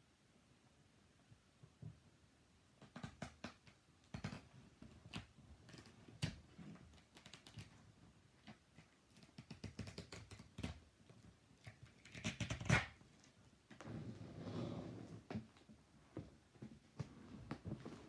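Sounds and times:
fingers scratching tape on box: 2.8 - 6.4, 9.2 - 10.8, 11.7 - 13.0.

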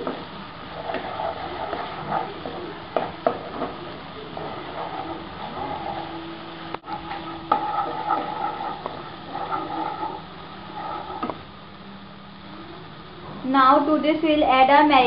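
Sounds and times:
spatula scraping pan: 0.0 - 11.4
masala sizzling: 0.0 - 15.0.

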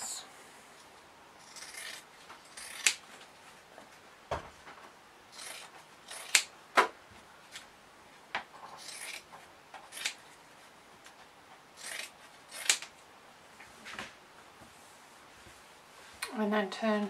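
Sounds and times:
scissors snipping fabric: 1.4 - 3.0, 5.4 - 6.5, 9.9 - 10.2, 11.8 - 12.9.

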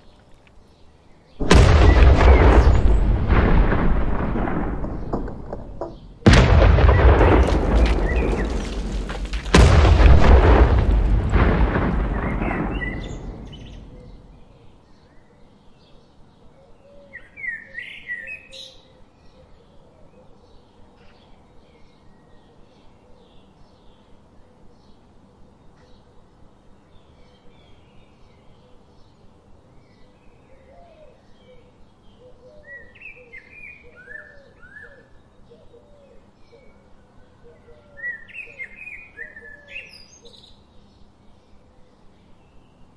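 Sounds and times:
explosion blasts: 1.4 - 14.4.

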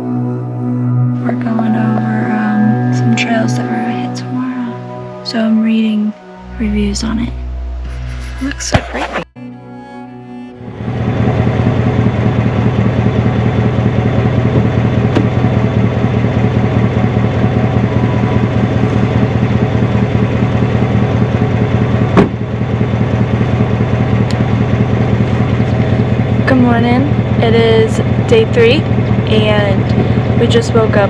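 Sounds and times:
car engine idling loud exhaust: 10.6 - 31.0
car door shutting: 14.6 - 15.4, 22.1 - 22.4.

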